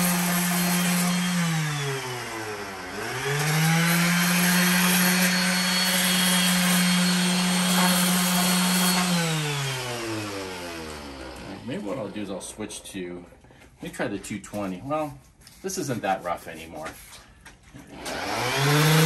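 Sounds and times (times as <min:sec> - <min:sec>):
electric sander motor hum: 0:00.0 - 0:12.2, 0:17.9 - 0:19.0
gritty sanding hiss: 0:03.4 - 0:09.1.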